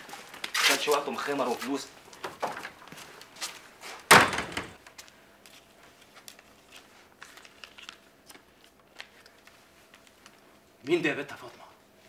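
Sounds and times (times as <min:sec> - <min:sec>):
wooden door slamming: 0:04.1 - 0:04.8.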